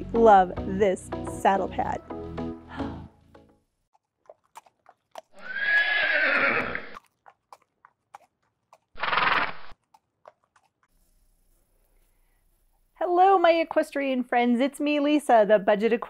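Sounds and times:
hoof clip-clops: 3.9s - 11.2s
horse whinnying: 5.3s - 7.0s, 9.0s - 9.7s.

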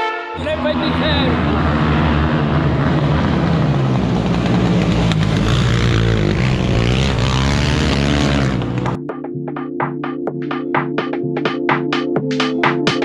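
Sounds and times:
quad bike engines buzzing: 0.4s - 9.0s.

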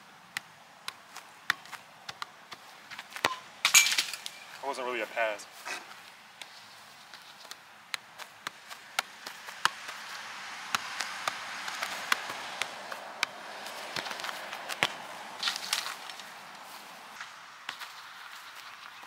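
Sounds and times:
soccer ball taps: 0.3s - 3.4s, 6.4s - 16.3s, 17.7s - 18.0s.

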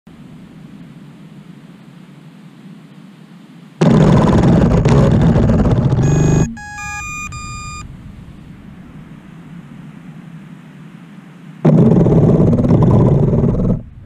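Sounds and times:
faint steady hiss: 0.1s - 14.0s
burst of harsh noise: 3.8s - 7.8s
electronic beeps: 6.0s - 7.9s.

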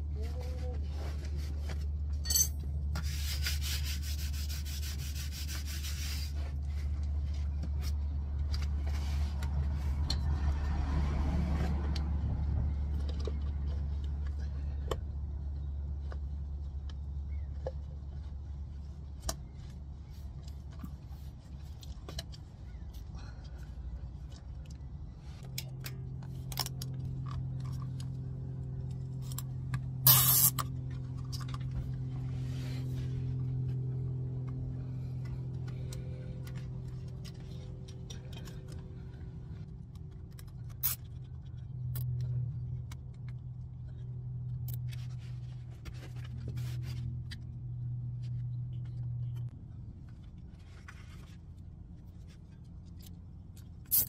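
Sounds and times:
hands rubbing a rubber boot: 3.0s - 8.0s
steady low hum: 12.2s - 54.0s.

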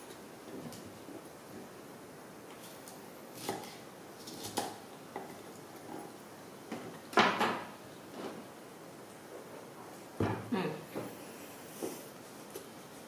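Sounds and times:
knife chopping on wooden board: 3.4s - 3.7s.

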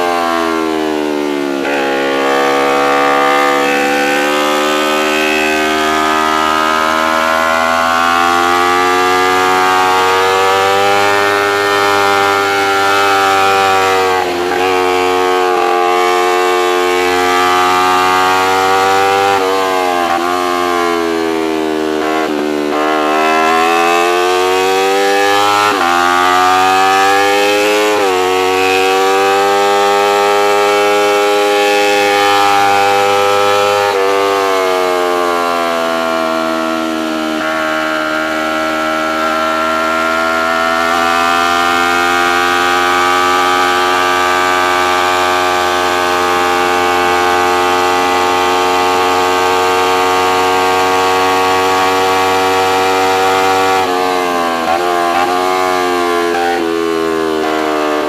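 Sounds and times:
racing motorcycle engine: 0.0s - 58.0s.

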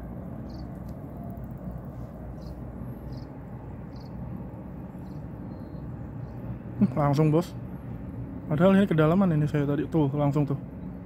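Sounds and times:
steady low rumble: 0.0s - 11.0s
faint high chirps: 5.0s - 6.4s.

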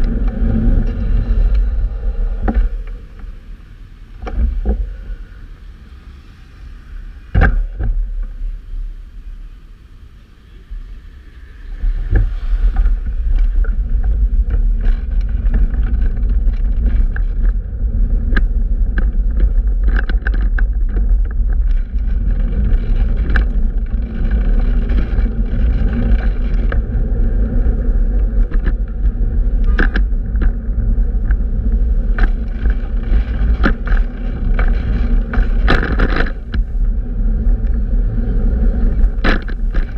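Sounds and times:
bicycle clicks and knocks: 0.0s - 1.7s, 11.8s - 38.2s, 38.8s - 39.9s
traffic rumble: 0.0s - 39.9s.

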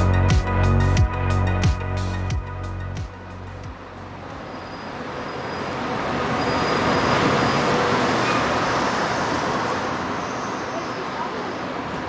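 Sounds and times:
intro music: 0.0s - 4.5s.

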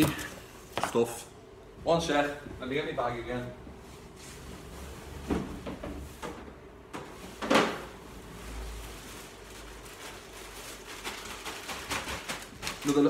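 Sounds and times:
handling noises: 0.0s - 1.0s
low room noise: 0.0s - 13.0s.

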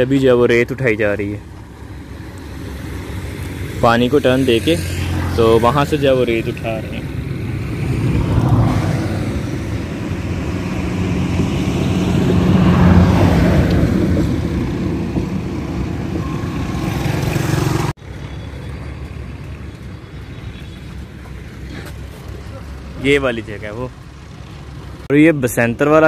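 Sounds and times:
road noise: 0.0s - 26.0s
wind noise: 6.9s - 16.9s.

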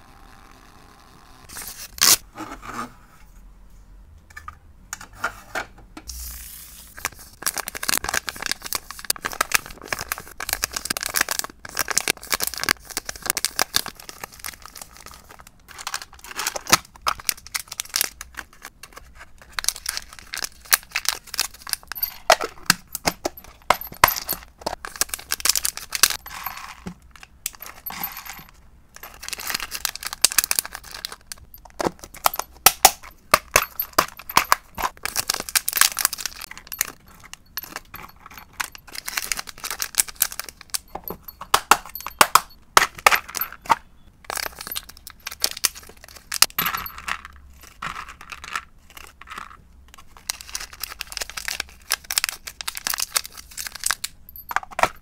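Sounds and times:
plastic bag crinkling: 6.9s - 18.7s, 19.4s - 32.6s, 33.5s - 42.2s, 44.3s - 54.5s
dry treats clinking: 19.6s - 49.6s.

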